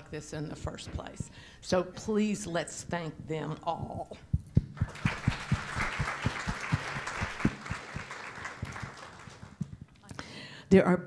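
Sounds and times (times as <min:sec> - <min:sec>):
audience applauding: 0:04.8 - 0:09.7.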